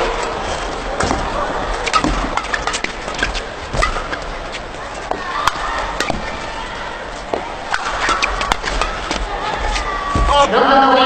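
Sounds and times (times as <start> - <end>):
crowd murmur: 0.0 - 11.0
rackets striking shuttlecock: 1.0 - 6.6, 7.2 - 9.9.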